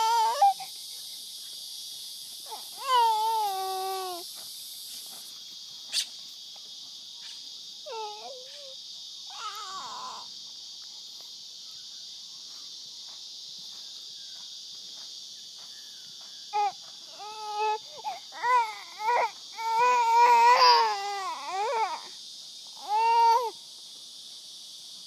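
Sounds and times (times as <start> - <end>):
high vocal cries: 0.0 - 0.9, 2.4 - 4.3, 7.8 - 10.4, 16.5 - 23.6
insects droning: 0.0 - 25.0.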